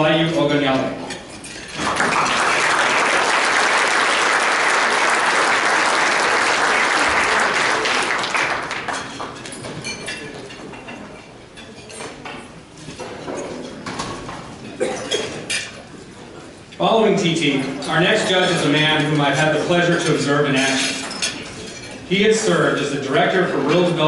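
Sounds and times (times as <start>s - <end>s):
audience applauding: 1.8s - 9.4s.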